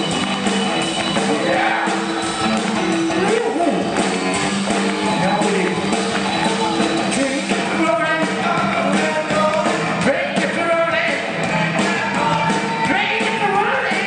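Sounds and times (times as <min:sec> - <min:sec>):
bass guitar: 0:00.0 - 0:14.0
drums: 0:00.0 - 0:14.0
electric guitars: 0:00.0 - 0:14.0
person singing lead vocal: 0:06.4 - 0:14.0.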